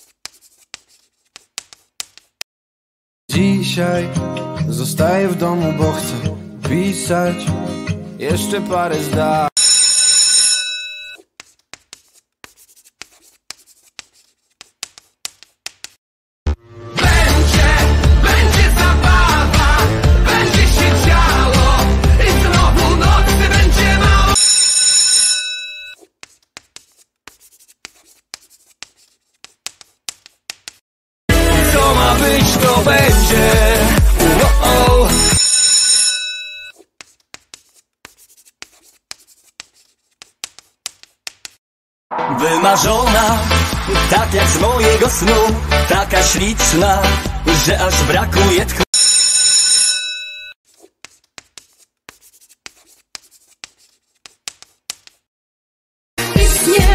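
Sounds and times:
chalk scratching on blackboard: 0.0 - 2.4, 11.2 - 16.0, 26.0 - 30.8, 36.8 - 41.6, 50.7 - 55.3
song playing: 16.5 - 24.4, 31.3 - 35.4, 42.1 - 48.7
bell-like chime: 42.1 - 43.4.

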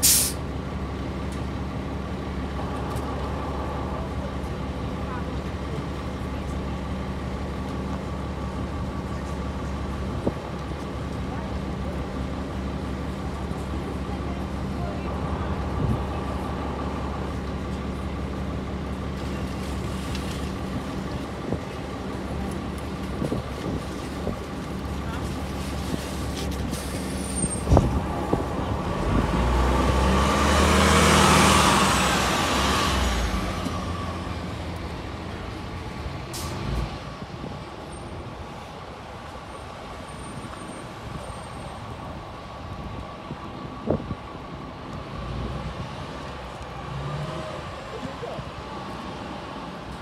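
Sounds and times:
short air hiss: 0.0 - 0.4
bus engine idling: 0.0 - 50.0.

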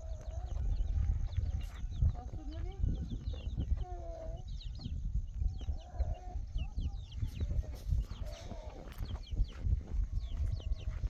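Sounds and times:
chicken clucking: 5.6 - 11.0.

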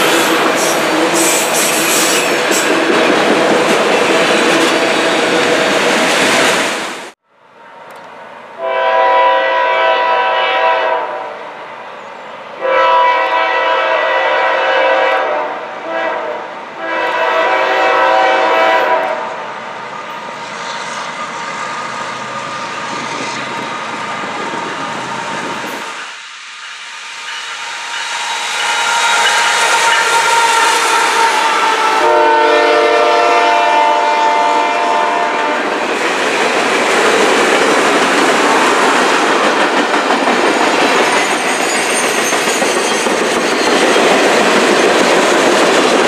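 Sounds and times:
locomotive air horn: 8.6 - 11.5, 12.6 - 19.4, 28.6 - 35.7
train rumble: 12.8 - 46.0.

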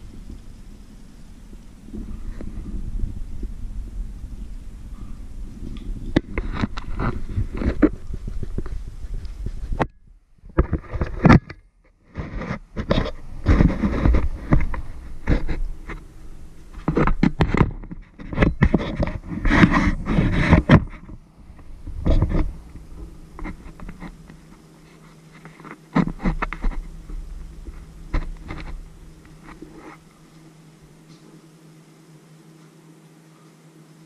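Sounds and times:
low steady hum: 0.0 - 34.0
camera handling rubbing and knocking: 6.1 - 11.6, 12.2 - 16.1, 16.7 - 30.1.

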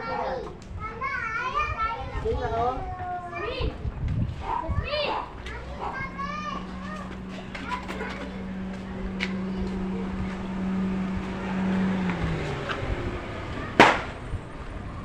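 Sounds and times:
small car engine driving past: 5.5 - 15.0
sharp bang: 13.7 - 14.2.

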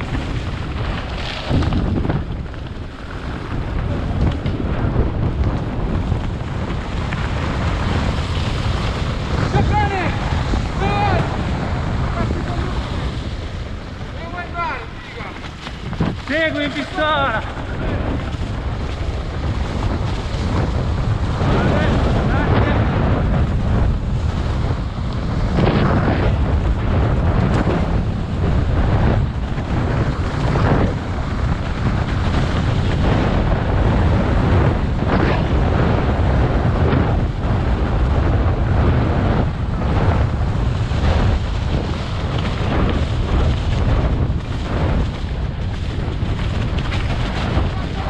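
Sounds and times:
tyres on leafy dirt: 0.0 - 22.2
bike knocking and rattling: 0.0 - 48.0
wind buffeting microphone: 0.0 - 48.0.

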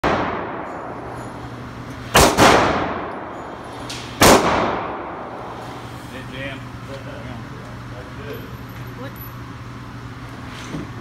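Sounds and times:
handgun shots echoing: 2.1 - 3.3, 4.2 - 5.2.

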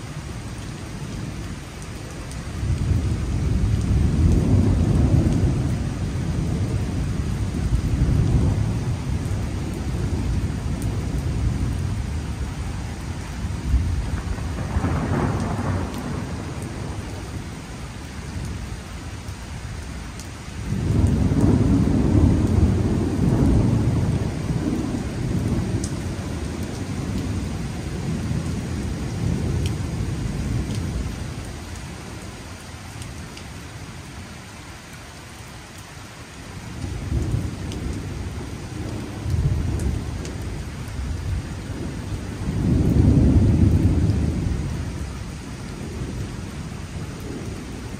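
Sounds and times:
rain falling: 0.0 - 47.9
deep thunder rumble: 2.6 - 12.7, 13.3 - 17.6, 20.7 - 31.5, 36.6 - 47.9.

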